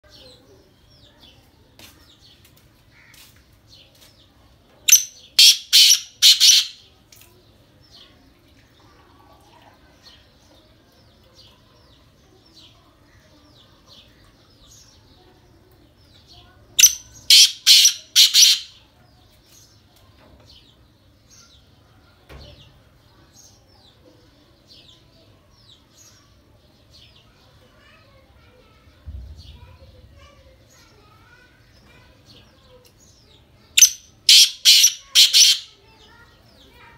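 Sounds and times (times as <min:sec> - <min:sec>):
francolin calling: 0:04.9 - 0:06.8, 0:16.8 - 0:18.7, 0:33.8 - 0:35.7.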